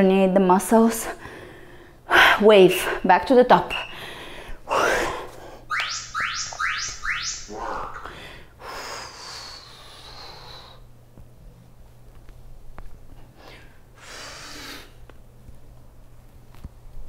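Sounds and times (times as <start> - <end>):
rising electronic chirps: 5.7 - 8.2.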